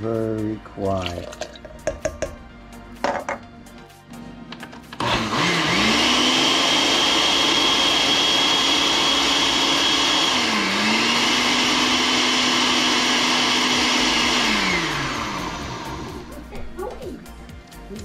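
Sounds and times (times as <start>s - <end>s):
blender motor whining: 4.9s - 16.4s.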